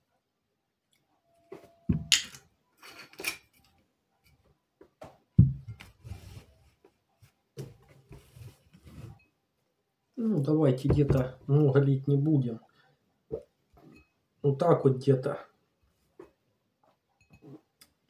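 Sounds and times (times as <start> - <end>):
glass and bottles knocking on table: 1.9 - 2.4, 5.4 - 5.8, 10.9 - 11.3.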